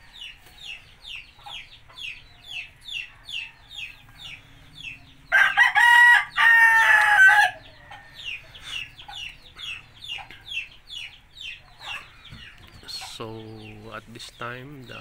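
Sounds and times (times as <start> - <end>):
rooster crowing: 5.3 - 8.2.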